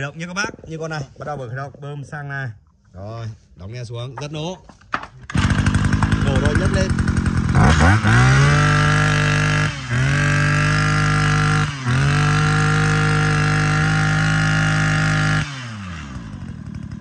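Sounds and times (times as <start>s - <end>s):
brush cutter engine revving: 5.2s - 17.0s.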